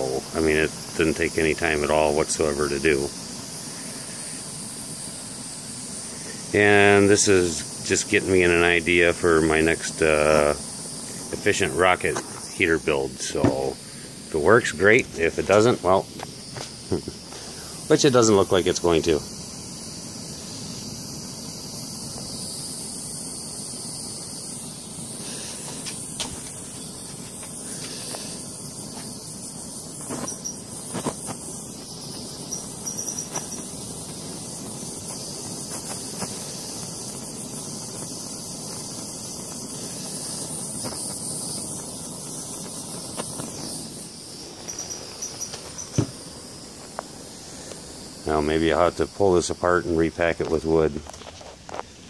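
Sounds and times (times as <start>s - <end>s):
fire crackles and pops: 0.0s - 52.0s
wood fire hissing: 0.0s - 52.0s.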